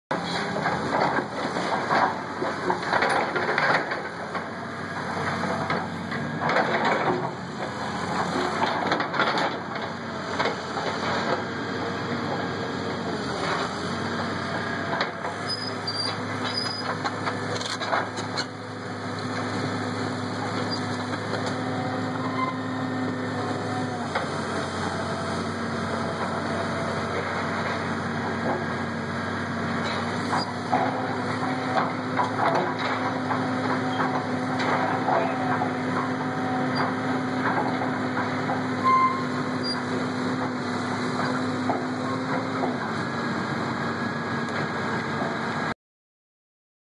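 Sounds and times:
excavator diesel engine running: 0:00.1 - 0:45.8.

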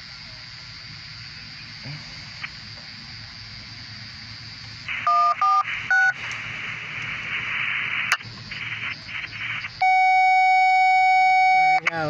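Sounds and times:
long steady electronic tone: 0:00.0 - 0:12.0
radio hiss: 0:00.0 - 0:12.0
radio beeps: 0:04.8 - 0:12.0.

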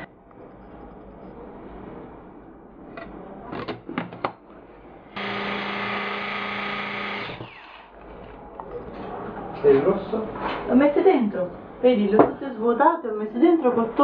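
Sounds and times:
electric chopper running: 0:05.2 - 0:07.8.

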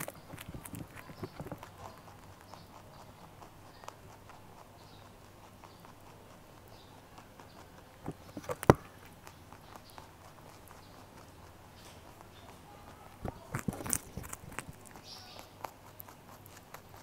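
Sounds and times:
loud sharp crunches: 0:00.0 - 0:02.4, 0:13.1 - 0:17.0
rabbit chewing: 0:00.0 - 0:17.0.

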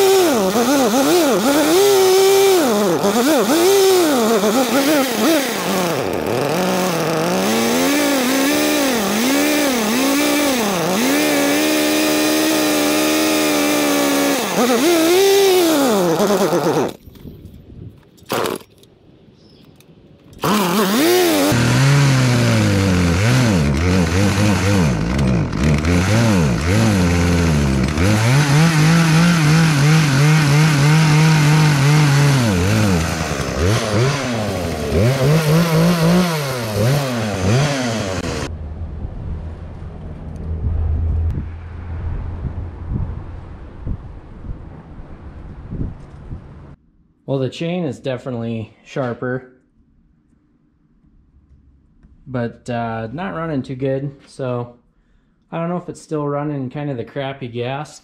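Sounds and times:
chainsaw running unevenly: 0:00.0 - 0:17.0, 0:20.4 - 0:38.5.

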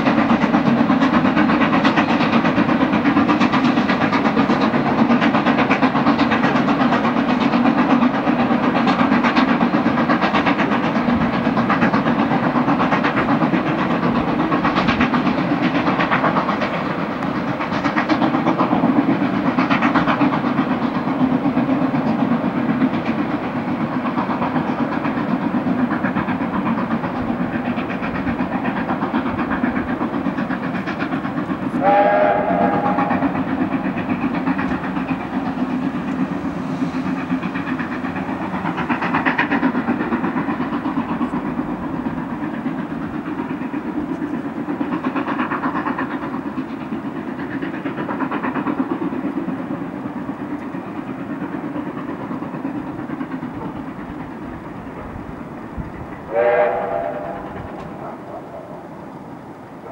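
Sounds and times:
steam train rumble: 0:00.0 - 0:59.9
steam whistle blast: 0:31.8 - 0:33.4, 0:56.3 - 0:57.6.

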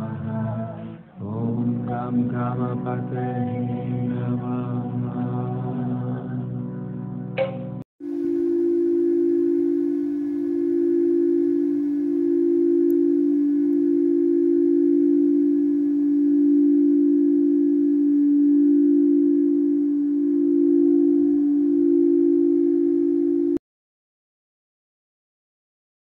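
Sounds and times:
crystal singing bowls ringing: 0:08.0 - 0:17.8.

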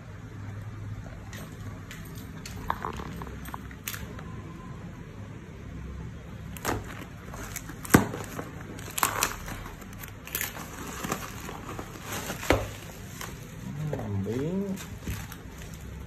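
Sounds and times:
bubble wrap crinkling: 0:06.4 - 0:16.0
cardboard parcel tearing: 0:06.5 - 0:16.0.

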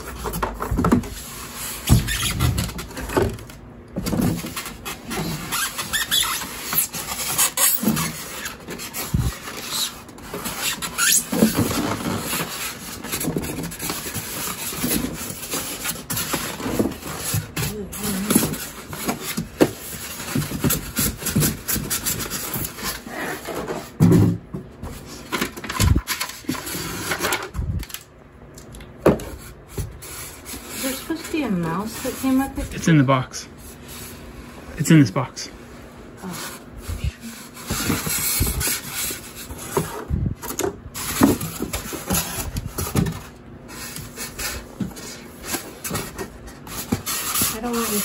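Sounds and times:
polystyrene foam scraping: 0:04.3 - 0:24.0, 0:40.9 - 0:48.0.

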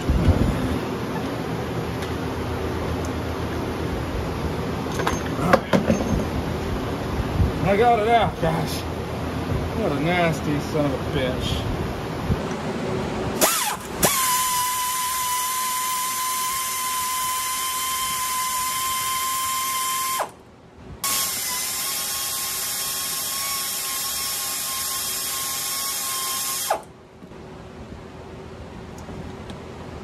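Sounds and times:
air ratchet whine: 0:13.4 - 0:20.4, 0:21.0 - 0:27.0.

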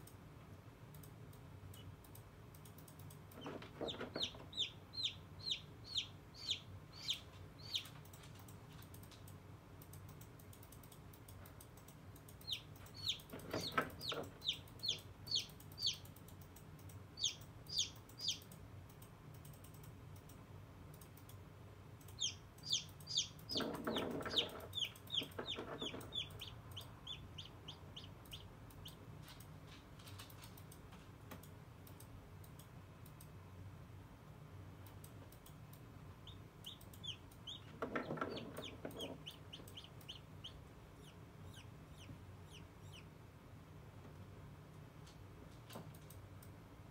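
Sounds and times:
chick peeping: 0:03.3 - 0:08.0, 0:12.3 - 0:16.2, 0:17.2 - 0:18.6, 0:22.1 - 0:29.0, 0:36.2 - 0:43.1.

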